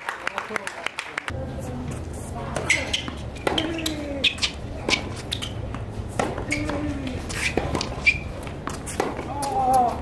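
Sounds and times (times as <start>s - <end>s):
racquets striking tennis ball: 2.4s - 10.0s.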